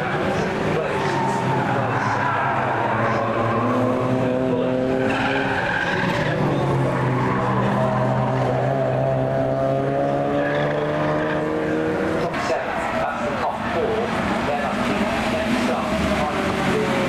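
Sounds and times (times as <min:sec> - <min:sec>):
tyres squealing: 0:00.0 - 0:08.3
race car engines: 0:00.0 - 0:17.0.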